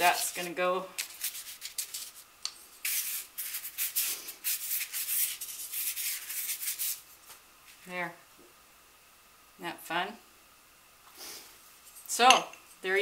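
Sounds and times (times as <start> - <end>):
paintbrush scrubbing sanded paper: 0.0 - 7.0.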